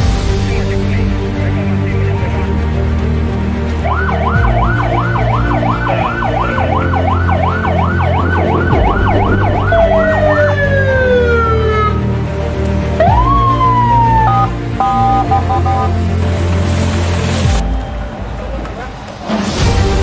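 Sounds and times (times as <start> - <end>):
background music: 0.0 - 20.0
electronic siren yelping: 3.9 - 12.0, 13.2 - 15.9.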